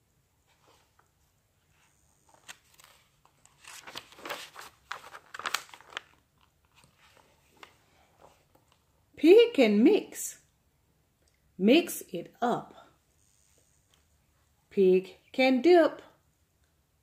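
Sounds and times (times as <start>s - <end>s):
book pages being turned: 0.4s - 8.9s.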